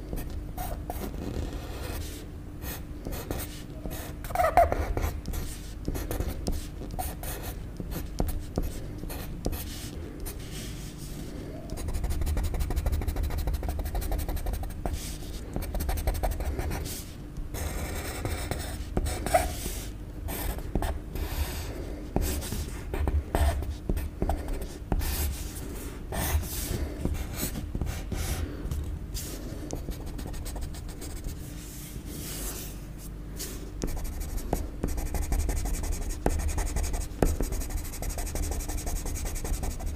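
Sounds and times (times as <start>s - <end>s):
faint steady hum: 0.0s - 39.9s
pencil scratching on paper: 0.6s - 25.6s, 33.8s - 39.9s.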